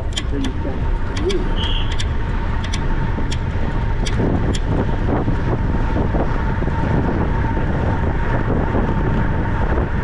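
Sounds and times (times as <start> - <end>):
sharp clicks: 0.0 - 4.7
wind rumble on microphone: 0.0 - 10.0.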